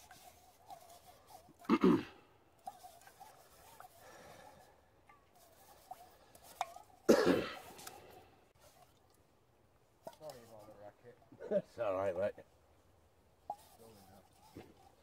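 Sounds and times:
scouring pad scrubbing metal cup: 0.0 - 2.0, 2.6 - 4.1, 5.4 - 8.0, 13.5 - 15.0
person coughing: 1.7 - 2.1, 7.1 - 7.7.

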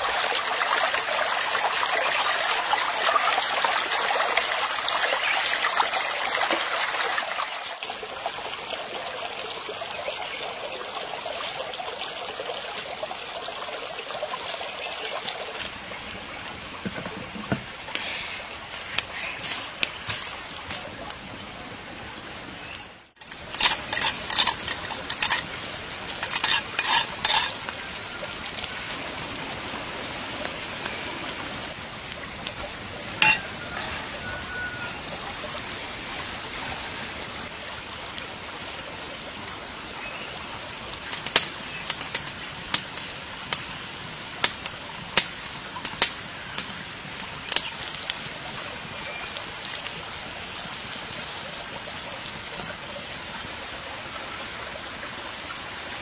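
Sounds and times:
sharp crackles and pops: 17.6 - 21.2, 41.0 - 52.1
oil sizzling on hot stone: 23.1 - 39.0, 40.8 - 53.7.

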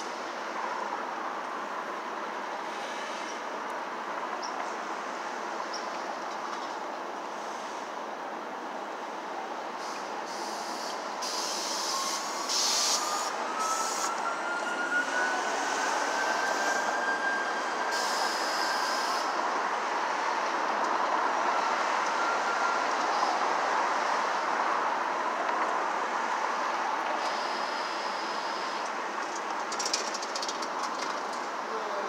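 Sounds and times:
city traffic: 0.0 - 32.0
vehicle whine rising in pitch: 10.3 - 28.8.

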